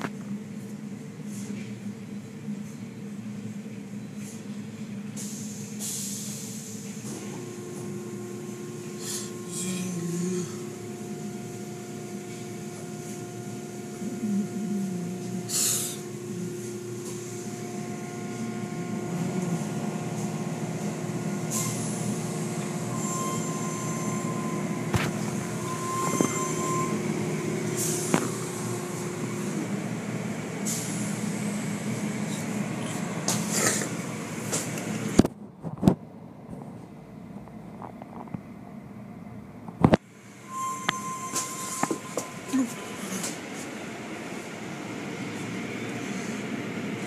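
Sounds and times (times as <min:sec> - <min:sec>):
car wash machinery humming: 0:00.0 - 0:37.3, 0:38.5 - 0:47.0
steady whining tones: 0:07.1 - 0:32.6, 0:40.1 - 0:47.0.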